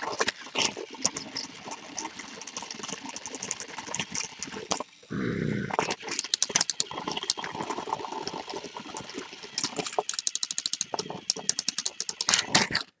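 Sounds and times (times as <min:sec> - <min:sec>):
toy train motor whirring: 0:06.1 - 0:07.4, 0:09.2 - 0:12.9
toy train rattling clicks: 0:06.2 - 0:07.4, 0:09.6 - 0:12.9.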